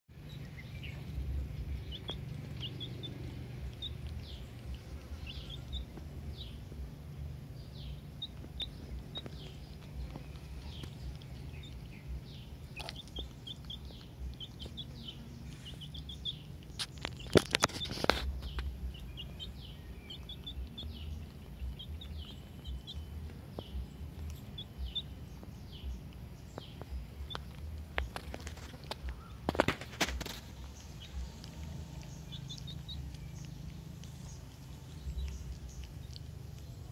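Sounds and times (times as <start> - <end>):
low steady rumble: 0.1 - 36.9
small birds chirping: 0.1 - 36.9
sharp clicks and knocks: 16.7 - 19.2.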